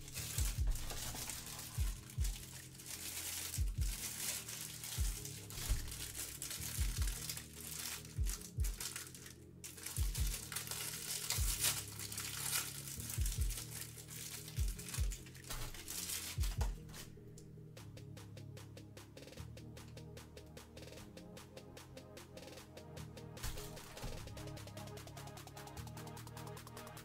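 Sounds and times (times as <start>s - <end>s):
music with bass beat: 0.0s - 2.7s, 3.4s - 4.3s, 5.0s - 7.5s, 8.1s - 8.9s, 10.0s - 10.5s, 13.1s - 13.7s, 14.6s - 27.0s
cellophane wrapper crinkling: 0.0s - 17.1s.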